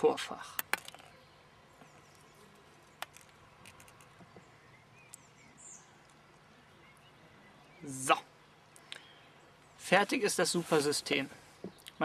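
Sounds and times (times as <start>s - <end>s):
faint bird chirps: 0.8s - 9.9s.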